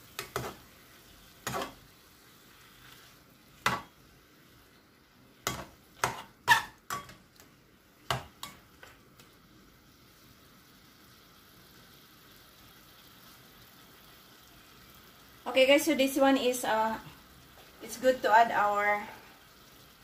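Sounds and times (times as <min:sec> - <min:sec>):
meat sizzling: 0:00.0 - 0:20.0.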